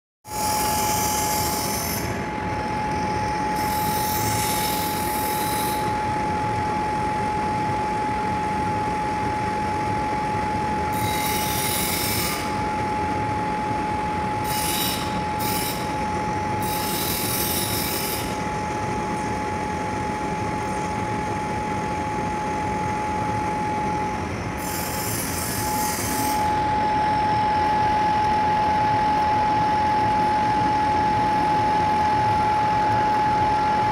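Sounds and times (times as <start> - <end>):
metal lathe whining: 0.3 - 6.4, 10.8 - 18.6, 23.5 - 33.9.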